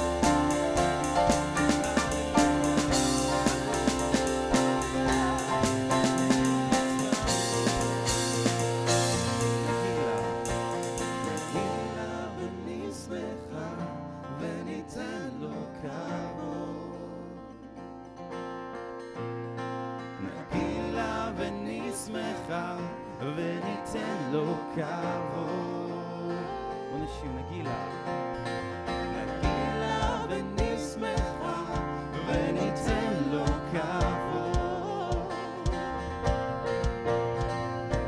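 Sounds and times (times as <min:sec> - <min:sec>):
worship band playing: 0:00.0 - 0:13.8, 0:28.4 - 0:38.0
person singing melody: 0:00.0 - 0:17.7, 0:20.2 - 0:36.8
kick drum beat: 0:32.9 - 0:38.0.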